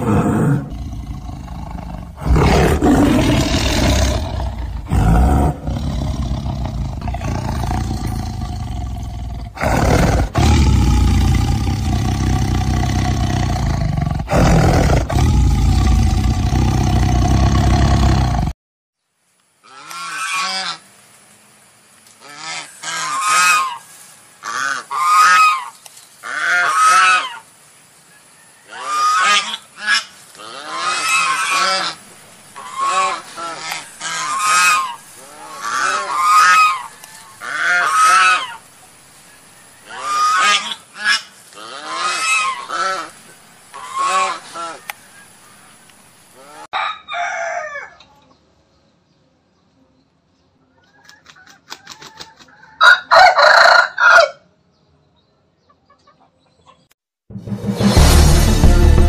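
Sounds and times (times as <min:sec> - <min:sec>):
loud rough low sound: 0:57.3 - 0:59.0.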